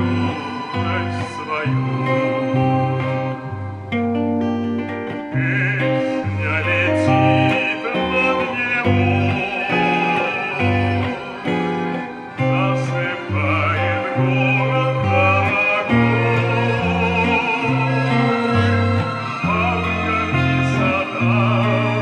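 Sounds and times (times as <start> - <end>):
electric guitar tune: 0.0 - 22.0
bass line: 5.4 - 22.0.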